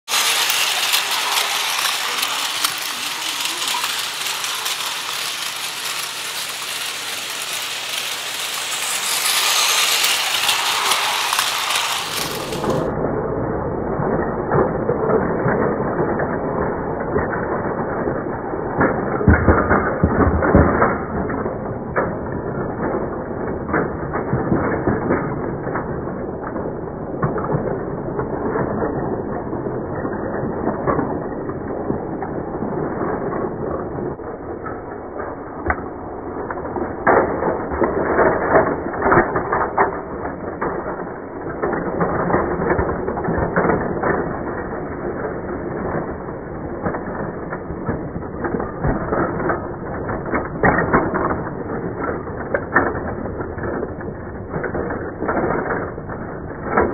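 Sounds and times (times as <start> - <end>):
plastic toy cars knocking: 0.0 - 12.9
toy train motor rattling: 0.0 - 12.9.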